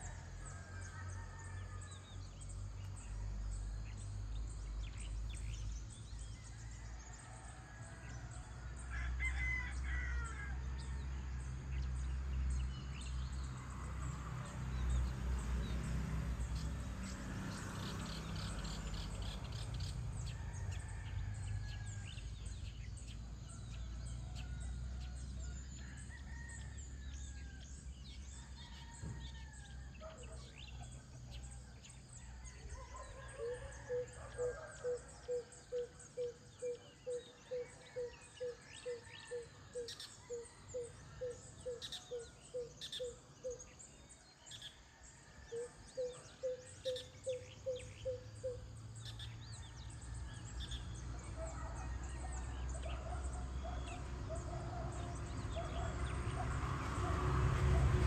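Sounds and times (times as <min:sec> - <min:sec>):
rooster crowing: 0:00.0 - 0:02.2, 0:06.6 - 0:11.2, 0:20.2 - 0:22.7, 0:23.5 - 0:31.4, 0:32.2 - 0:43.0, 0:49.1 - 0:56.0
birds chirping and calling: 0:28.1 - 0:44.8, 0:45.5 - 0:58.0.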